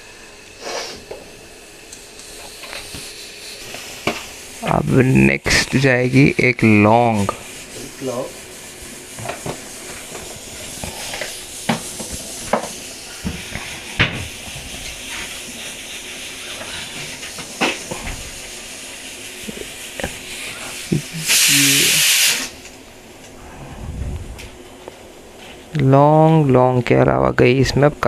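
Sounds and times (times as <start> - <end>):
gas burner hissing: 0.0 - 28.0
loud short hiss: 0.6 - 1.1, 20.5 - 22.6.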